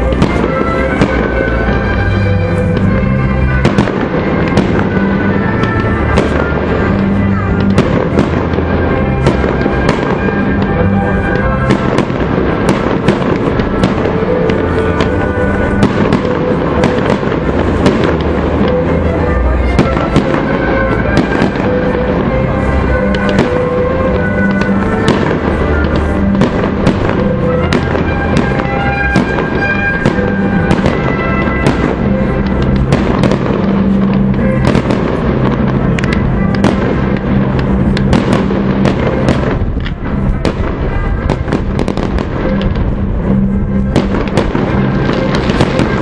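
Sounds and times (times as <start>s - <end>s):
fireworks bursting: 0.0s - 46.0s
music playing: 0.0s - 46.0s.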